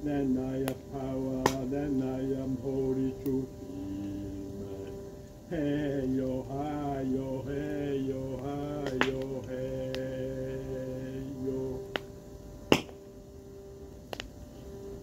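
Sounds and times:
person singing a slow chant: 0.0s - 13.8s
wood fire crackling and popping: 0.6s - 0.8s, 1.4s - 1.7s, 7.6s - 10.2s, 11.8s - 13.1s, 14.0s - 14.4s.

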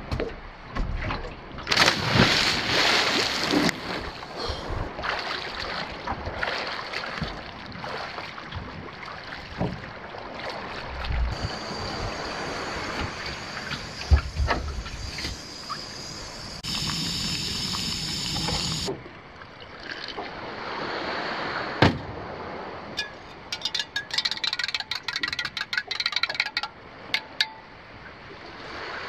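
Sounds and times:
water lapping against boat: 0.0s - 23.6s
camp stove hissing: 11.3s - 18.9s
spoon clinking in metal mug: 23.0s - 27.6s.

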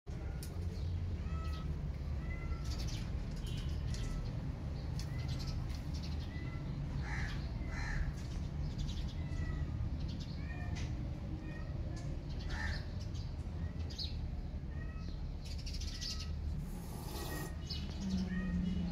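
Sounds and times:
small birds chirping: 0.1s - 18.9s
crows cawing: 7.0s - 8.2s, 12.5s - 12.9s.

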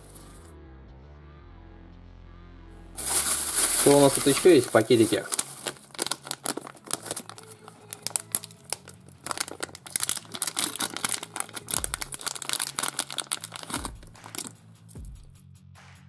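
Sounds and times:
plastic and paper crinkling: 3.0s - 14.5s.

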